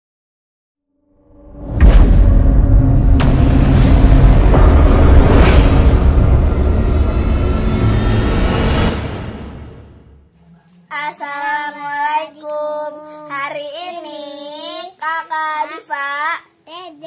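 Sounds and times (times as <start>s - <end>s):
intro music: 1.2s - 10.3s.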